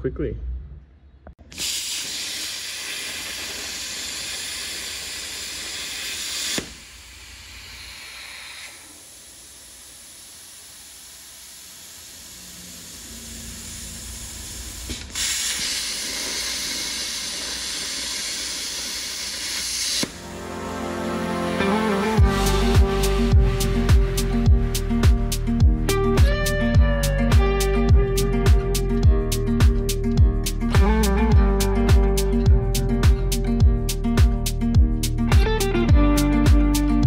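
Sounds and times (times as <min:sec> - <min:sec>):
plasma cutter hissing: 0:01.5 - 0:20.2
torch click: 0:01.5 - 0:20.2.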